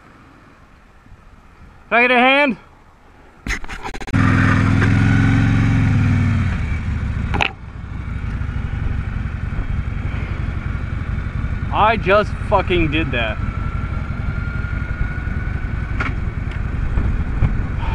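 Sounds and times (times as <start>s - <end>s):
motorcycle engine pulling away: 4.1s - 12.1s, 13.3s - 17.9s.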